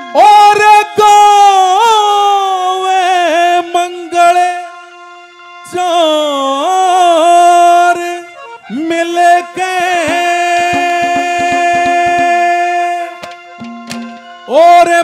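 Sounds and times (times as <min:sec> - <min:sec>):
man singing long notes: 0:00.0 - 0:15.0
instrumental drone: 0:10.0 - 0:14.6.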